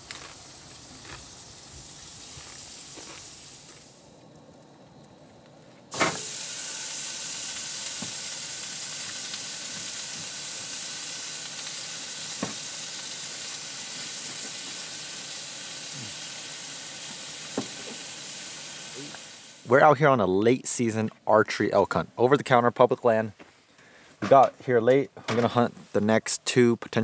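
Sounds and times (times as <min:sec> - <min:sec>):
food sizzling in a frying pan: 0:00.0 - 0:04.1, 0:05.9 - 0:19.7.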